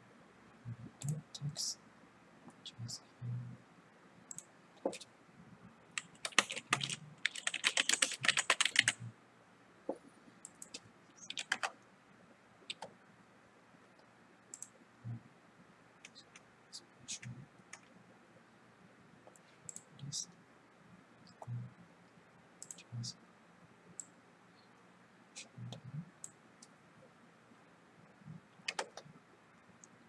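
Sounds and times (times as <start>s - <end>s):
keyboard typing: 5.9s - 9.1s, 10.4s - 11.8s, 12.6s - 12.9s, 28.6s - 29.1s.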